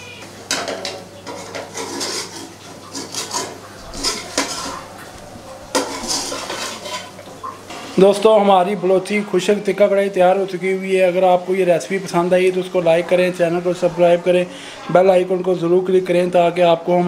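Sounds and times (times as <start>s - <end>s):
utensil scraping a metal pan: 0.5s - 8.1s.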